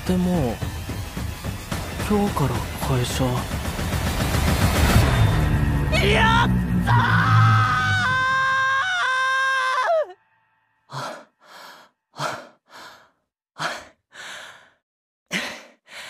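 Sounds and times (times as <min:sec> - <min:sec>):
man breathing heavily: 0:10.9 - 0:16.0.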